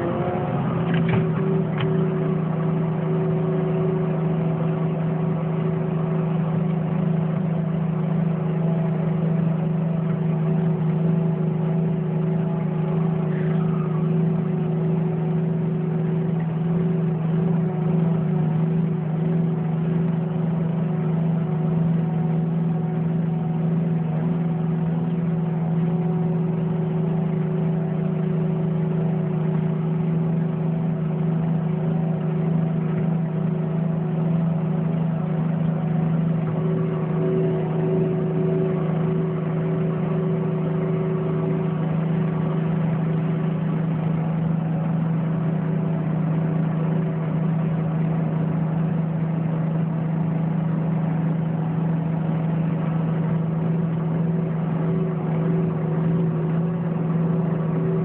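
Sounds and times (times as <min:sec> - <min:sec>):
diesel engine drone from cab: 0:00.0 - 0:58.0.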